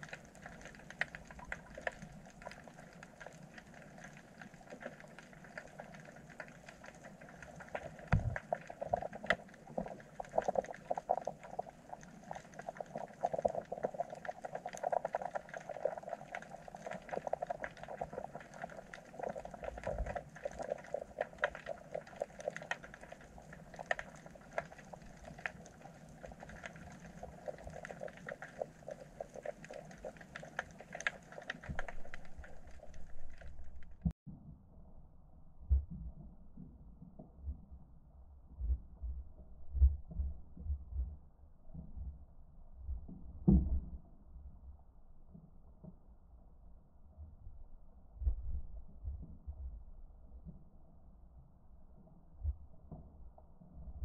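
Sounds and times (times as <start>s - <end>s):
underwater crackle of clicks: 0.0s - 34.2s
dull low thumps: 8.1s - 8.4s.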